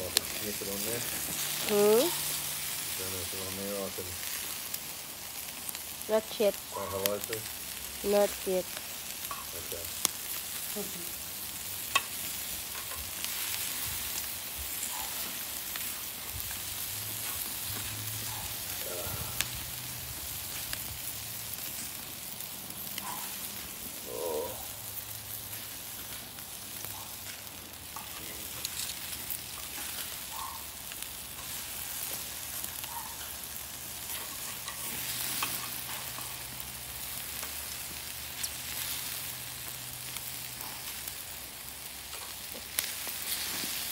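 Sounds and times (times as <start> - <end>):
meat sizzling over charcoal: 0.0 - 43.9
grill tongs clicking: 11.8 - 13.4, 27.0 - 36.6.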